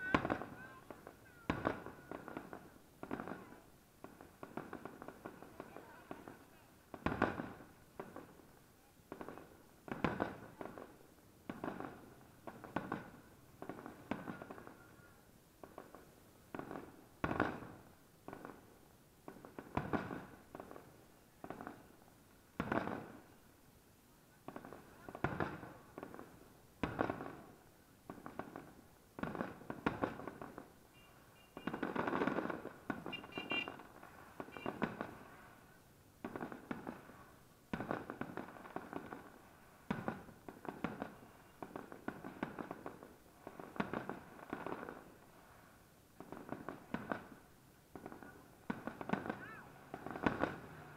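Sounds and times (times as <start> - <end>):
firework shells bursting: 31.4 - 35.3.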